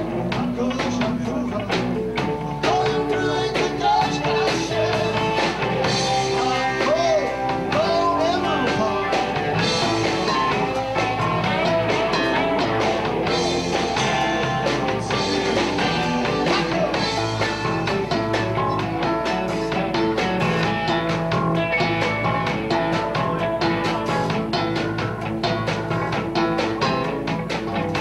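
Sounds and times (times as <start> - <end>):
live rock band playing: 0.0 - 28.0
man singing: 0.1 - 10.6, 14.0 - 17.4.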